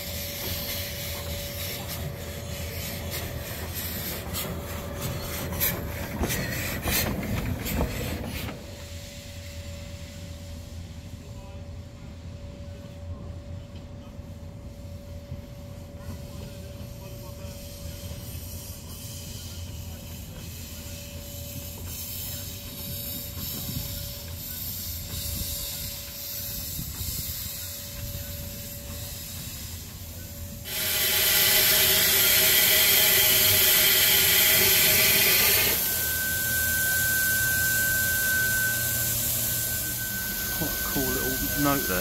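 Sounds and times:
steam locomotive rumble: 0.0 - 42.0
loud steam hiss: 17.4 - 42.0
steady high whine: 32.6 - 42.0.

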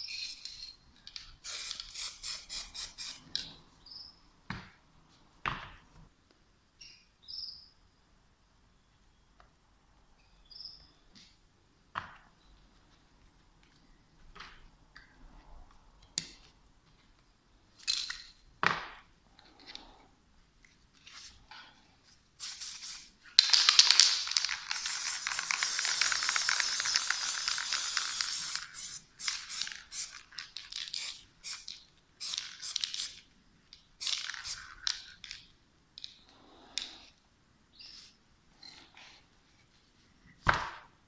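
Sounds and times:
spray paint cans hissing: 1.3 - 3.4, 22.4 - 33.2, 34.0 - 35.2.

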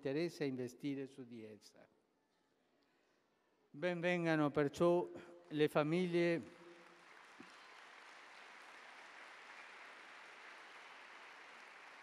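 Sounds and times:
faint distant applause: 6.4 - 12.0.

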